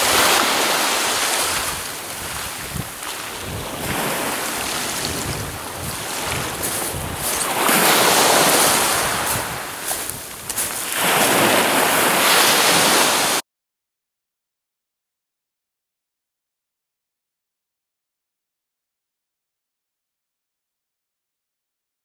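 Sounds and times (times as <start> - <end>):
waves breaking on shingle beach: 0.0 - 13.4
wind on microphone: 0.0 - 13.4.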